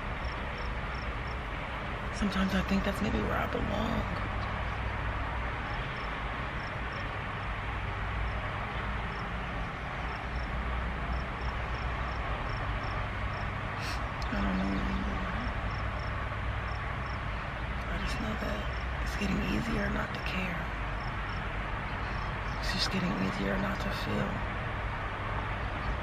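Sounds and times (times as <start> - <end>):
low hum and hiss in car: 0.0 - 26.0
low voiced sound: 13.8 - 15.6.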